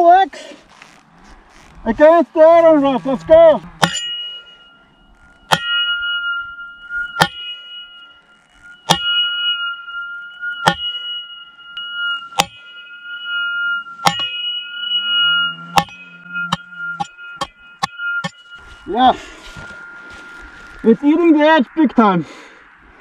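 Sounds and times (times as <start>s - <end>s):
metal ringing: 1.6s - 23.0s
axe head clanging on iron post: 3.8s - 4.2s, 5.5s - 5.8s, 7.2s - 7.6s, 8.8s - 9.6s, 10.6s - 11.3s, 12.4s - 12.6s, 14.0s - 14.6s, 15.8s - 18.4s.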